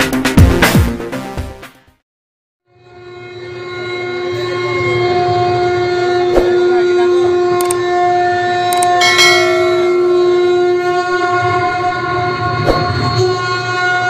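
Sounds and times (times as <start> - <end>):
held musical drone: 2.8 - 14.0
brass hand cymbals clashing: 8.9 - 11.1.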